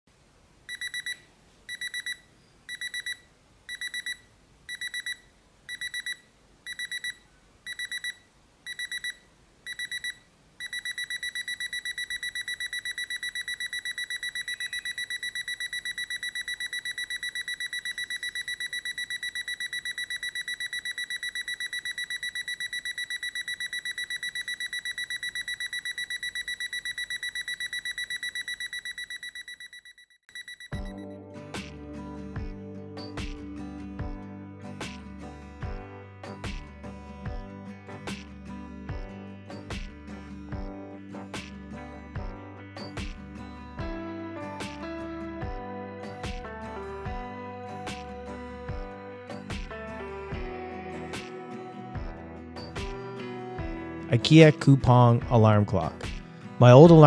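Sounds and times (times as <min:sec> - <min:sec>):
alarm clock beeping: 0:00.7 - 0:31.1.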